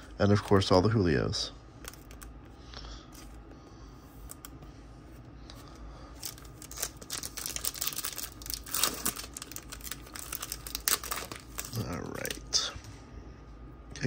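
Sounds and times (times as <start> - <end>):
foil pack crinkling and tearing: 6.2 - 12.5.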